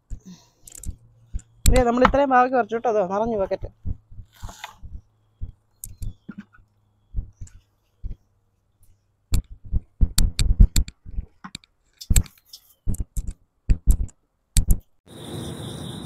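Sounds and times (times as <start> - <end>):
irregular clicks and knocks: 9.3 - 15.0.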